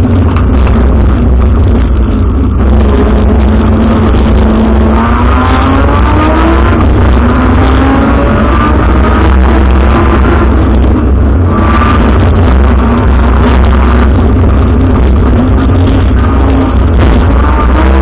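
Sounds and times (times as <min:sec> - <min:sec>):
car engine accelerating: 0:00.0 - 0:18.0.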